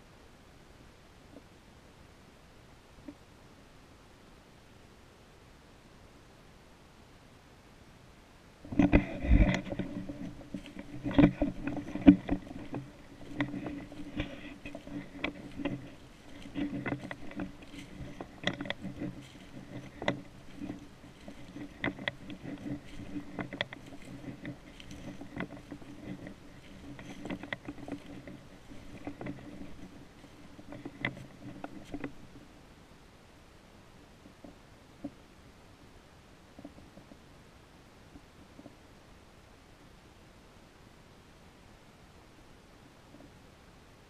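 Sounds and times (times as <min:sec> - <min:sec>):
footsteps crunching through dry leaves: 0:09.5 - 0:32.3.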